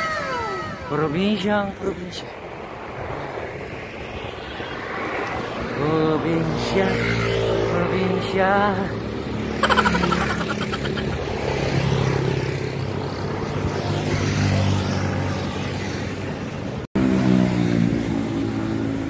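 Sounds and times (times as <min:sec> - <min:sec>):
traffic engine hum: 0:00.0 - 0:19.0
motorcycle buzzing past: 0:17.0 - 0:19.0.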